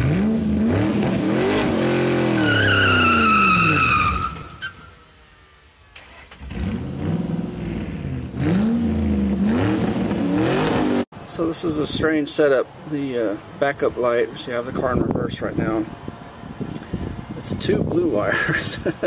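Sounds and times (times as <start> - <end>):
car engine revving: 0.0 - 4.7, 6.0 - 11.1
tire squeal: 1.4 - 5.1.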